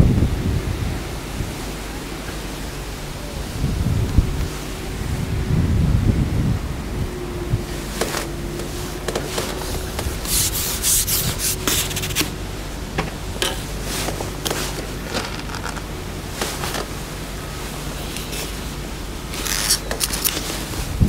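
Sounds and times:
rubbing and scraping noises: 7.8s - 12.4s, 13.4s - 17.1s, 19.3s - 21.0s.

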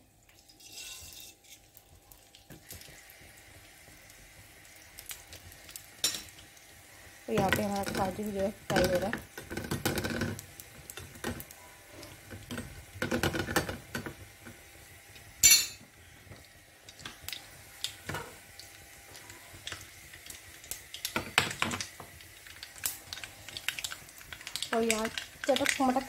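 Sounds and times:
light sizzle: 0.0s - 26.0s
spoon scraping metal pan: 0.6s - 1.6s.

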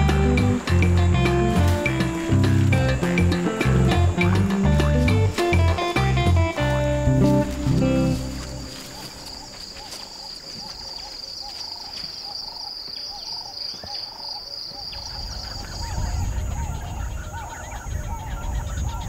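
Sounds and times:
faint high ticking: 0.0s - 9.7s
high-pitched insect drone: 0.0s - 10.4s.

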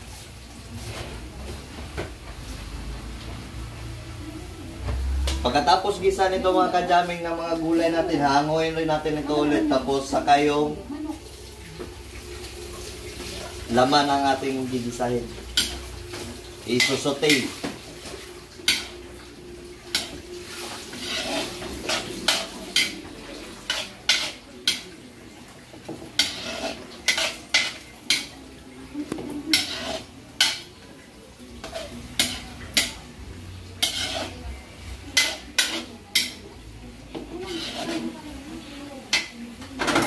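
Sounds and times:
light sizzling: 5.1s - 40.0s
metal spatula scraping wok: 12.8s - 19.1s, 19.9s - 24.8s, 26.0s - 28.3s, 29.4s - 30.7s, 31.6s - 36.5s, 37.1s - 40.0s.

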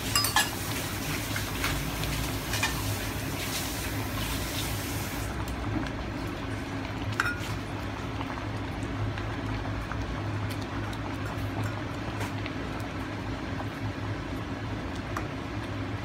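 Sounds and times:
ladle clinking against pot: 0.2s - 0.5s
ladle stirring stew: 7.2s - 7.8s.

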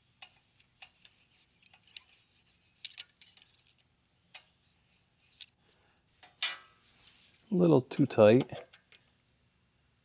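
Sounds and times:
metal clicks and light scraping: 0.2s - 2.2s, 2.8s - 4.6s.

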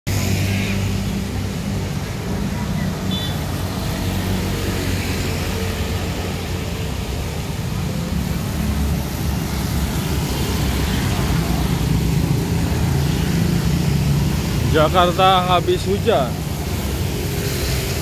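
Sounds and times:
road noise on wet road: 0.0s - 18.0s
traffic engines humming: 0.0s - 18.0s.

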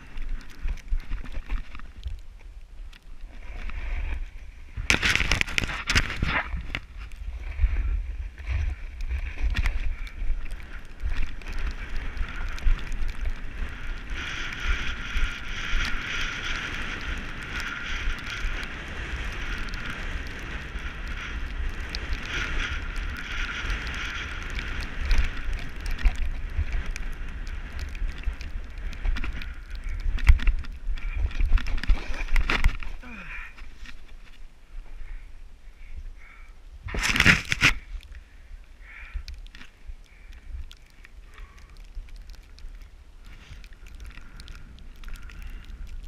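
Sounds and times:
ski edges sliding on snow: 3.2s - 33.0s, 42.4s - 45.7s
wind buffeting microphone: 3.2s - 46.0s.

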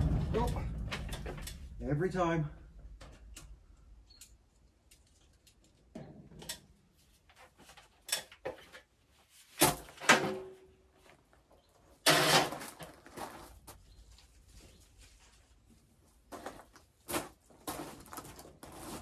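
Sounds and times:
knocks rustles and clatter: 0.0s - 1.9s, 2.6s - 15.7s.

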